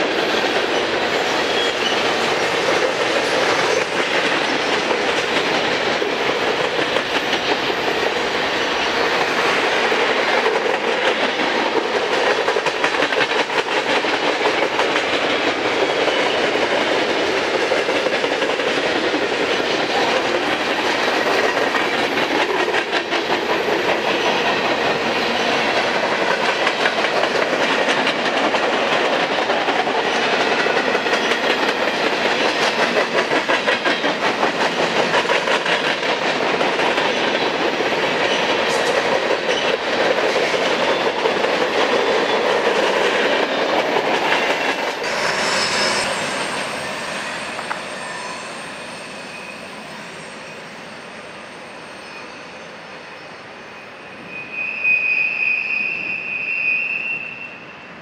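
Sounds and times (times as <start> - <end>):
clickety-clack over rail joints: 0.0 - 45.6
train wheels rumbling on rail: 0.0 - 53.3.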